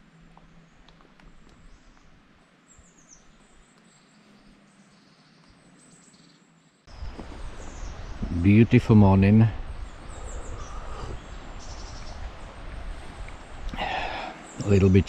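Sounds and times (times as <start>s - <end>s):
outdoor hiss: 6.9s - 15.0s.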